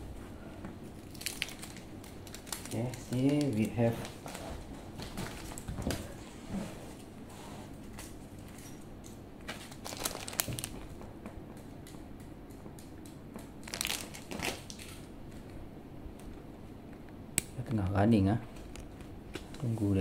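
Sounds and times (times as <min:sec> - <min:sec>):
crinkling and rustling handling: 0:00.6 - 0:07.1, 0:07.8 - 0:11.1, 0:13.6 - 0:15.6.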